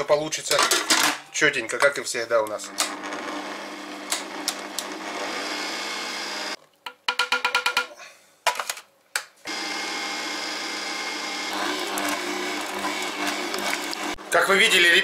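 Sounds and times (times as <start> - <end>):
kitchen machine motor kneading dough: 2.5 - 6.6, 9.5 - 14.9.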